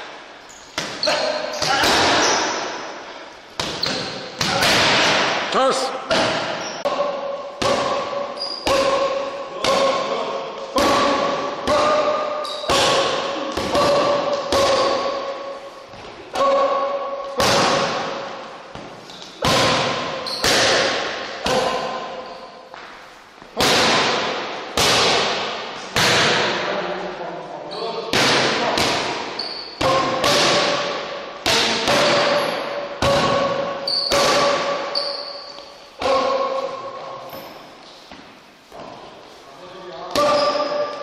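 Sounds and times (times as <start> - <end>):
boxing gloves striking mitts: 7.6 - 10.1, 10.8 - 15.3, 17.4 - 22.0, 23.5 - 26.6, 28.1 - 34.9.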